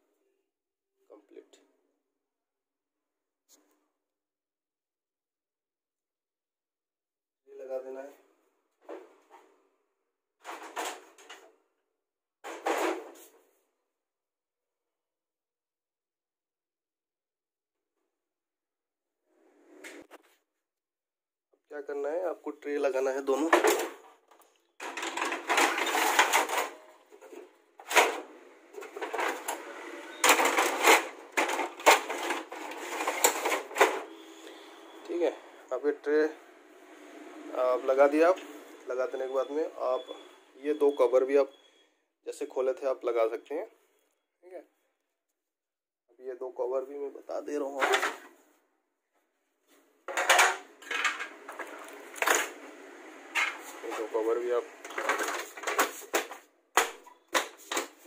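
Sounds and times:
plastic cassettes clattering and clicking: 24.8 - 34.1, 50.1 - 52.6, 54.8 - 58.0.

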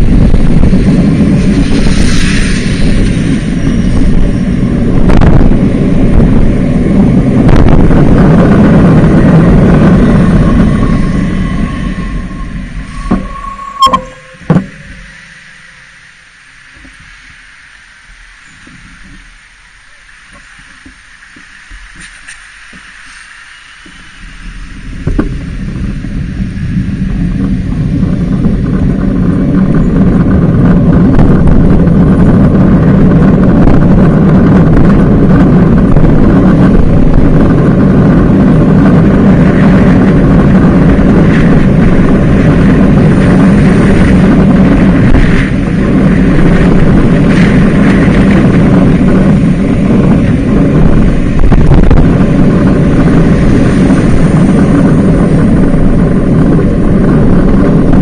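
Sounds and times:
road and traffic noise: 0.0 - 58.0
wind rumble on microphone: 0.0 - 58.0.

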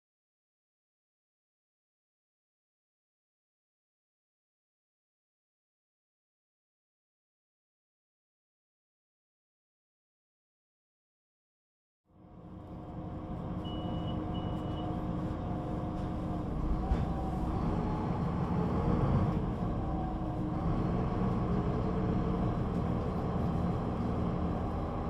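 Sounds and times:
bus diesel engine running: 12.1 - 25.0.

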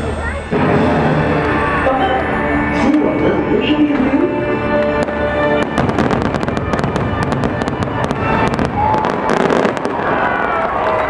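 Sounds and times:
loud show music: 0.0 - 9.6
fireworks crackling and popping: 4.8 - 11.0.

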